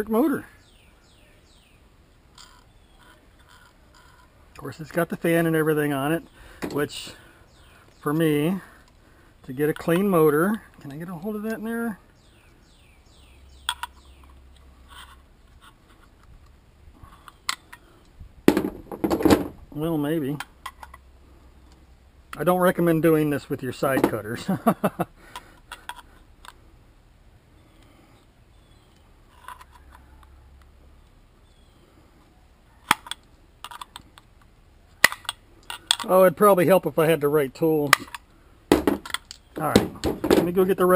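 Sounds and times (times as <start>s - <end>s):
handling noise: 6.5s - 7.2s, 18.4s - 21.0s, 23.8s - 24.6s, 37.8s - 40.9s.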